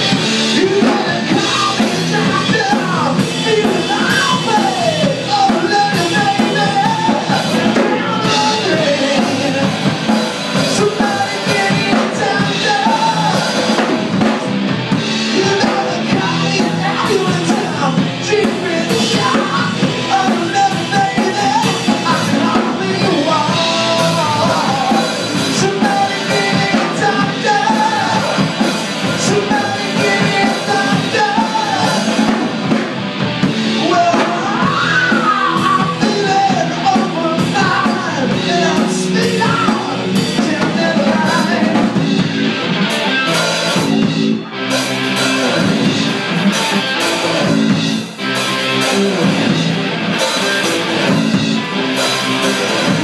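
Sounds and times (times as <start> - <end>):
person singing: 0.0 - 32.8, 33.4 - 42.3
bass guitar: 0.0 - 53.0
drum kit: 0.0 - 53.0
electric guitar: 0.0 - 53.0.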